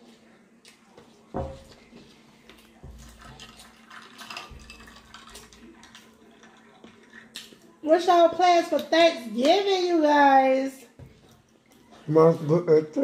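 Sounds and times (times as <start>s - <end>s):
person eating crackly food: 3.4s - 7.8s.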